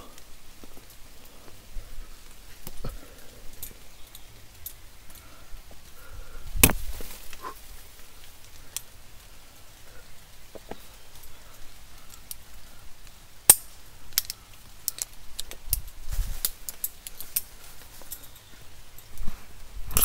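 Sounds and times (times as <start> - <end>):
hands and gear rustling on rock: 6.5 - 8.3.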